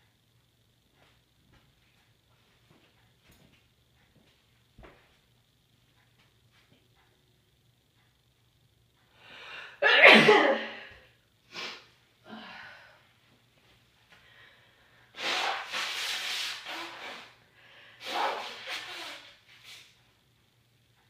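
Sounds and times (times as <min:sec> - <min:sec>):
person sneezing: 0:09.8 - 0:11.9, 0:15.2 - 0:17.4, 0:18.0 - 0:19.4
person sniffing: 0:11.5 - 0:11.9, 0:15.1 - 0:19.9.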